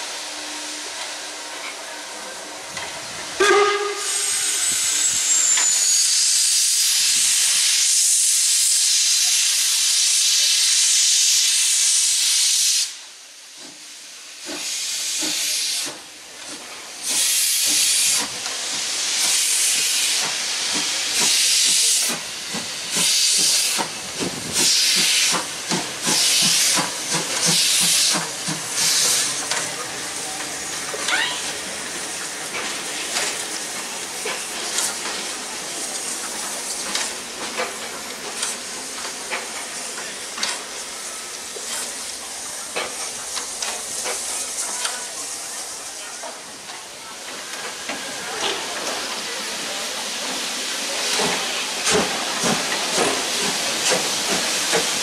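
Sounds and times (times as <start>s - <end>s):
steam locomotive hissing: 0.0s - 55.0s.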